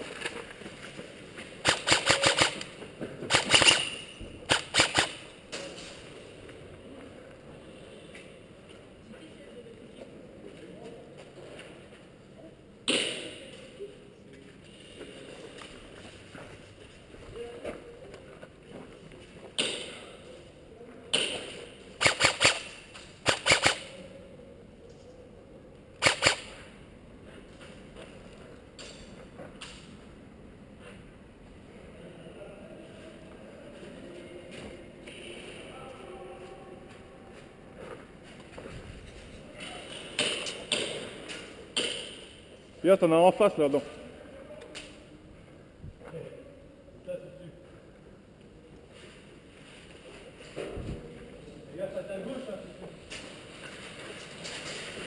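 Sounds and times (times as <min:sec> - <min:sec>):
airsoft gun firing rapid shots: 0:01.6 - 0:05.3, 0:22.0 - 0:24.0, 0:26.0 - 0:26.6.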